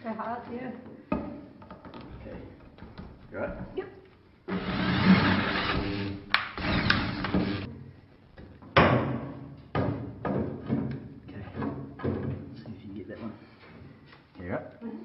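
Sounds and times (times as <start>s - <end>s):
electric drill drilling metal: 4.5s - 7.7s.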